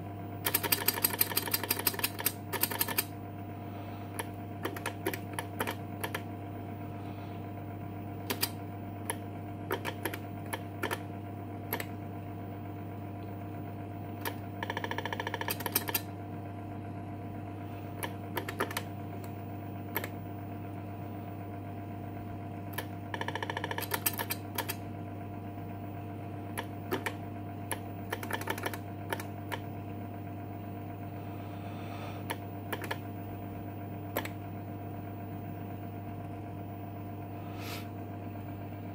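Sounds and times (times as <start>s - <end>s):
electrical hum: 0.0s - 38.9s
keyboard key clicks: 4.6s - 6.2s, 8.3s - 11.0s, 14.2s - 16.0s, 18.0s - 18.9s, 22.8s - 24.8s, 26.6s - 29.6s, 32.7s - 33.0s.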